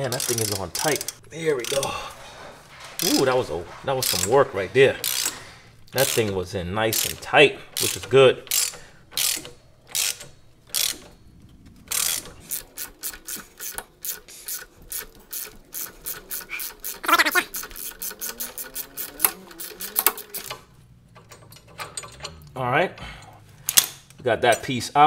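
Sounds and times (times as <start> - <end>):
socket ratchet clicking: 0.0 - 1.8, 6.9 - 11.2
metallic scrape: 1.6 - 6.3.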